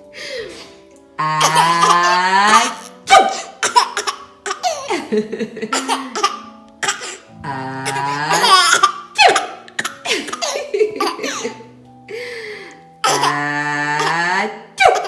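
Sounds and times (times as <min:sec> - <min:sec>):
baby laughing: 0:01.3 - 0:07.2, 0:07.8 - 0:11.6, 0:13.0 - 0:15.0.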